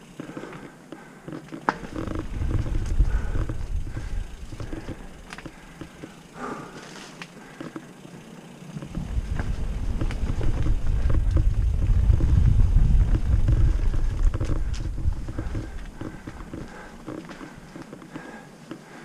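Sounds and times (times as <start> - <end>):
bike rattling over rough ground: 0.0 - 19.0
wind buffeting the microphone: 1.9 - 5.1, 8.9 - 17.0.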